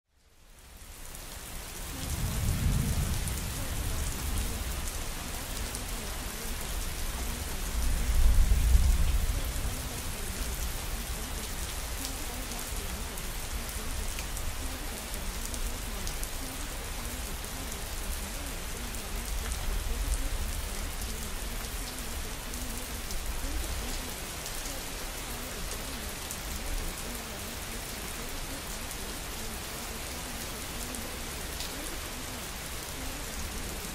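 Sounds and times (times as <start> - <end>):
steady rain falling: 0.1 - 33.9
deep thunder rumbles: 2.0 - 5.0, 7.7 - 10.1.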